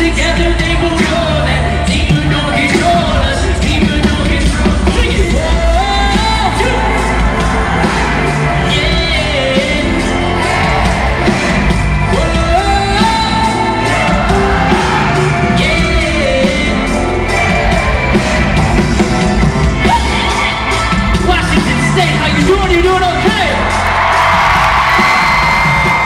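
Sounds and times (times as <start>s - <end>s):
man singing: 0.0s - 11.3s, 12.0s - 18.6s
live band through sound system: 0.0s - 26.0s.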